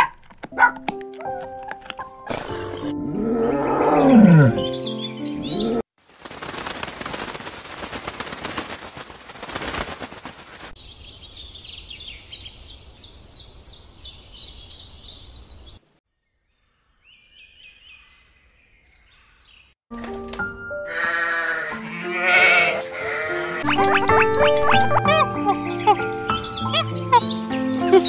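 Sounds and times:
bird chirps: 10.8s - 19.8s, 23.5s - 28.0s.

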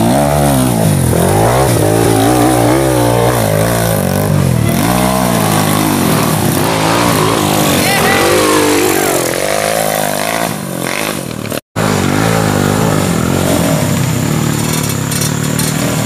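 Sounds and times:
motorcycle engines revving: 0.0s - 16.0s.

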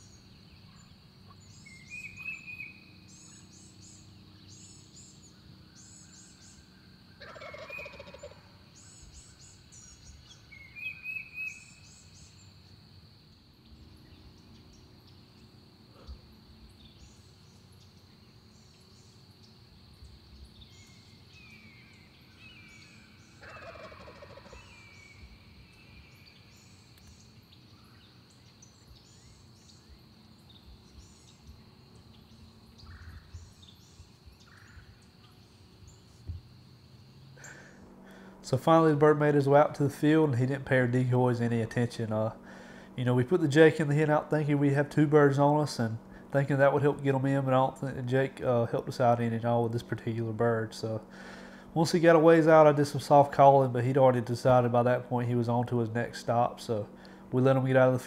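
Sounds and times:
sharp bird chirps: 0.0s - 12.7s, 16.0s - 36.3s
faint small-bird calls: 0.0s - 43.3s
turkey gobbling: 7.2s - 8.5s, 23.4s - 25.0s.

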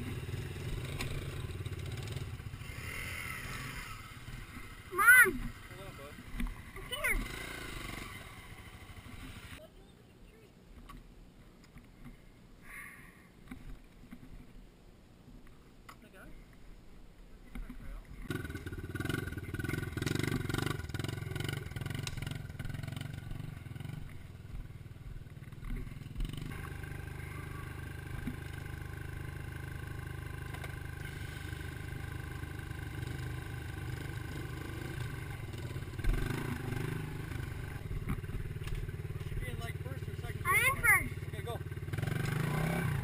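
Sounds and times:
dirt bike engine revving: 0.0s - 9.6s, 18.3s - 43.0s.

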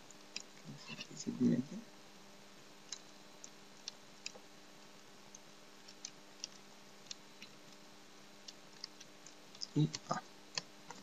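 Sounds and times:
steady low hum: 0.0s - 11.0s
computer keyboard typing: 5.8s - 7.8s, 8.4s - 11.0s.

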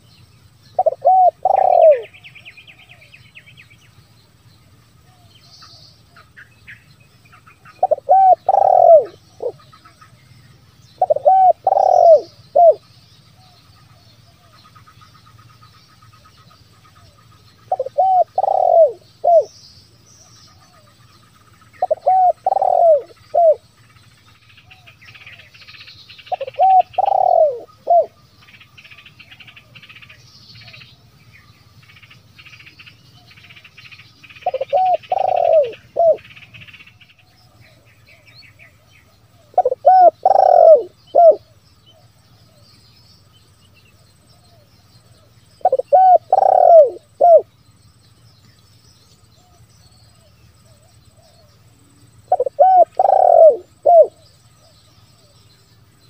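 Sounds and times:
small birds chirping: 0.0s - 56.0s
dove cooing: 0.8s - 3.1s, 7.6s - 10.0s, 11.0s - 12.8s, 17.0s - 19.5s, 21.8s - 23.6s, 26.2s - 28.2s, 34.4s - 36.7s, 37.4s - 42.6s, 44.4s - 47.5s, 52.3s - 55.4s.

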